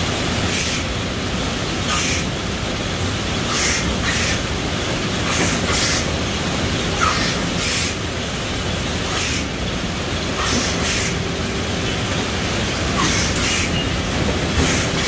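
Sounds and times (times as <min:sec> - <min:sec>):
machine conveyor rumble: 0:00.0 - 0:15.0
short air hisses: 0:10.4 - 0:11.2.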